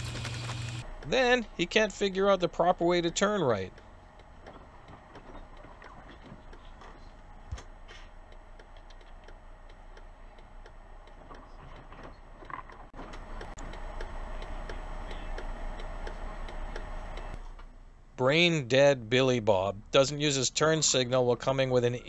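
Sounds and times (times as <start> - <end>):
bus engine humming: 0.0 - 18.1
turn signal ticking: 3.7 - 6.7, 8.2 - 17.4.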